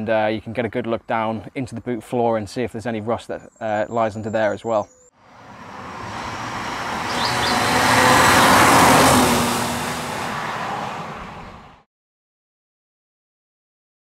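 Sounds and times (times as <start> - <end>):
car engine passing by: 5.2 - 11.9
tyres hissing on wet road: 5.3 - 11.7.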